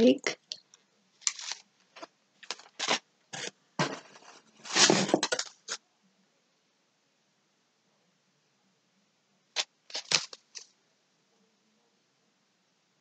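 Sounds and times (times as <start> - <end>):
cardboard box rustling: 2.5 - 5.5.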